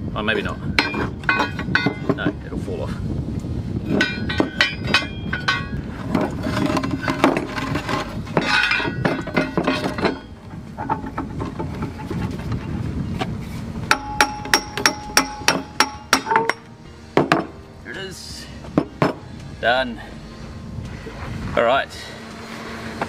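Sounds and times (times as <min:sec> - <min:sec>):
steel parts clinking and scraping: 0:00.7 - 0:02.4, 0:03.8 - 0:12.8, 0:13.9 - 0:17.6.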